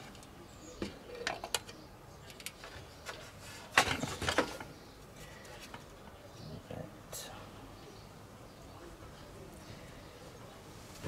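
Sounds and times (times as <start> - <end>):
hands handling computer case parts: 0.0 - 6.0.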